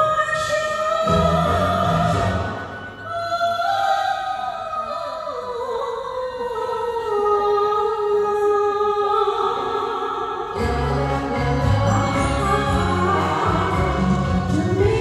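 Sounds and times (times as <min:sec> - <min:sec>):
slow melody with bass and beat: 0:10.6 - 0:15.0.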